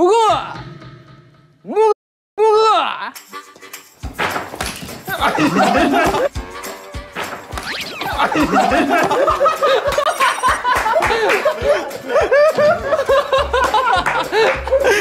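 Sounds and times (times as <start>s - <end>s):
young men laughing hard: 5.0s - 6.3s, 8.0s - 15.0s.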